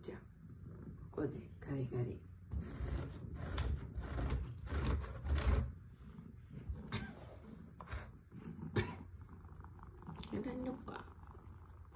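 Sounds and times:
fingernails scraping cardboard: 2.5s - 5.8s.

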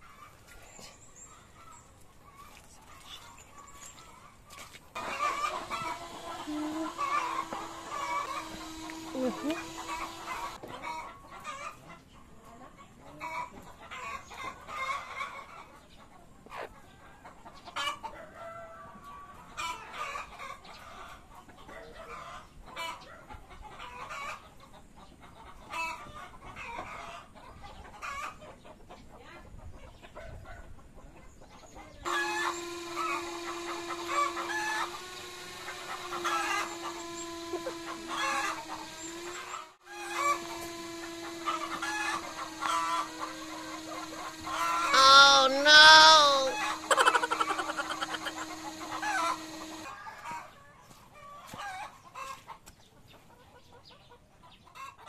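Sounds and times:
hens clucking: 1.4s - 18.2s, 35.9s - 40.4s, 41.2s - 55.0s.

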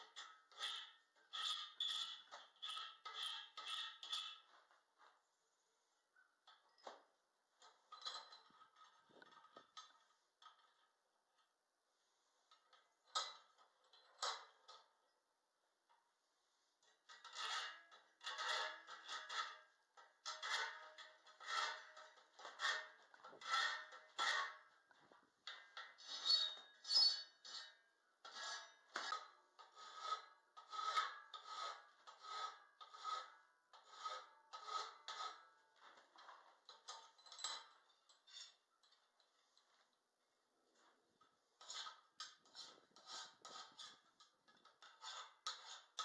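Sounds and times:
hand file rasping on steel bar: 20.3s - 24.6s, 26.0s - 35.5s, 41.6s - 44.0s, 44.8s - 46.0s.

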